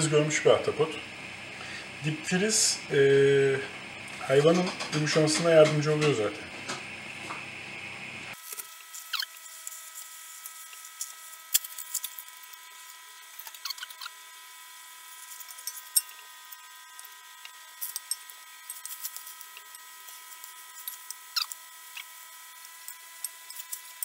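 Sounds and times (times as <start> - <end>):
food simmering crackles and pops: 8.3 - 14.1.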